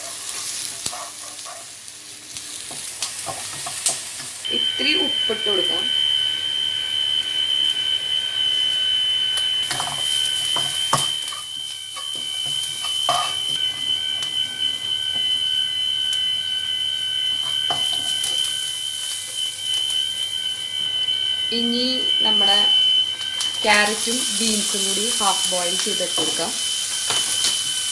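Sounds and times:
wooden spatula scraping a pan: 0:00.0 - 0:01.7
onions sizzling in a pan: 0:00.0 - 0:27.9
steady high-pitched tone: 0:04.4 - 0:27.9.

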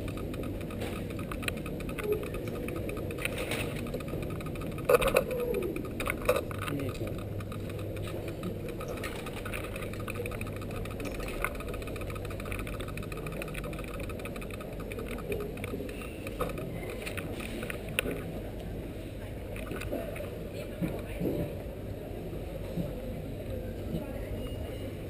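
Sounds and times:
bicycle tyres rumbling: 0:00.0 - 0:18.3
sharp clicks: 0:00.0 - 0:18.3.

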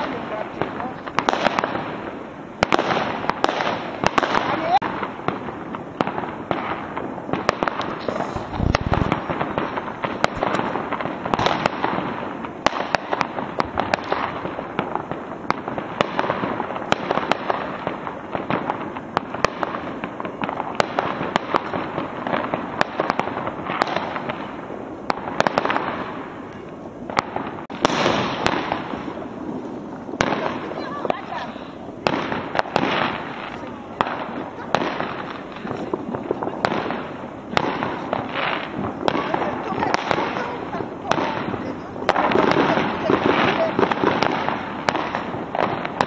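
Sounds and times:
fireworks crackling and banging: 0:00.0 - 0:46.0.

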